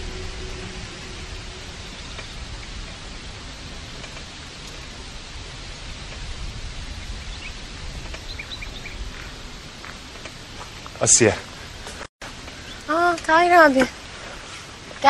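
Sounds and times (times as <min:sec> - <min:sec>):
background hiss: 0:00.0 - 0:15.0
bird chirps: 0:07.3 - 0:12.0.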